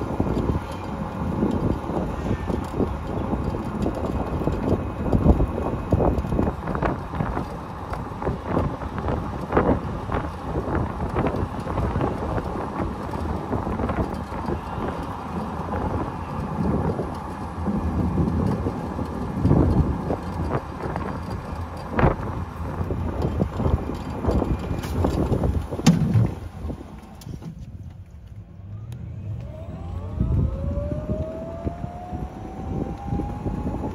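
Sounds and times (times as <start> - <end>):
vehicle road noise: 0.0 - 33.9
wind buffeting microphone: 0.0 - 33.9
short knocks and bumps: 23.2 - 26.4.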